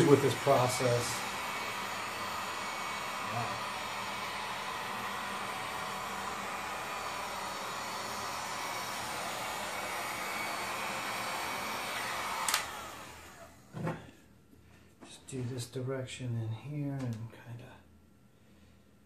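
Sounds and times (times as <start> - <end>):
heat gun blowing with whine: 0.0 - 14.0.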